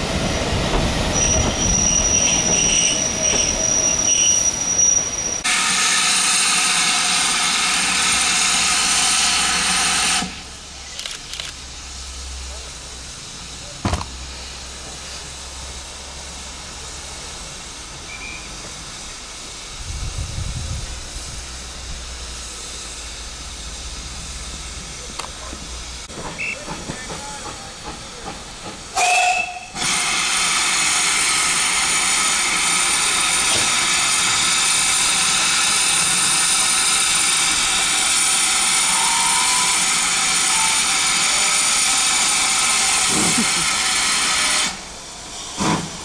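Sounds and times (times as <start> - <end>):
loud hiss of escaping steam: 0.0 - 46.0
low rumble of departing train: 0.0 - 46.0
steam locomotive whistle: 26.3 - 27.5, 28.9 - 32.2, 35.6 - 42.7.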